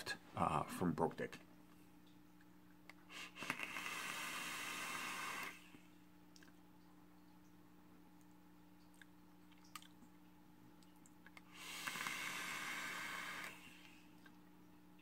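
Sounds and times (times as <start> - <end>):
vape airflow hiss and sizzle: 3.1 - 5.8, 11.5 - 13.7.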